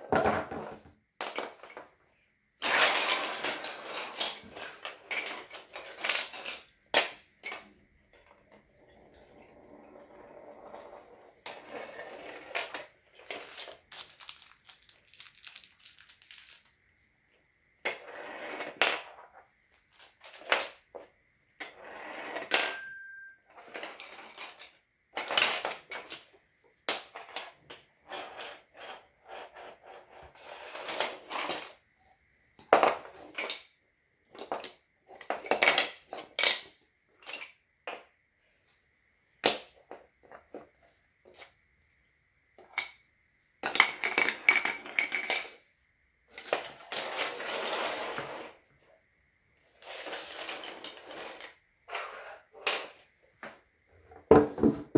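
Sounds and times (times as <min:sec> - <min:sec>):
wooden pieces clicking and clattering: 0:12.7 - 0:16.7.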